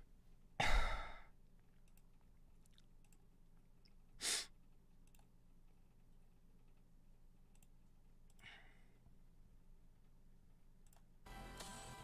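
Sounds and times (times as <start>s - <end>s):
faint computer mouse clicks: 5.0s - 5.3s, 7.5s - 8.5s.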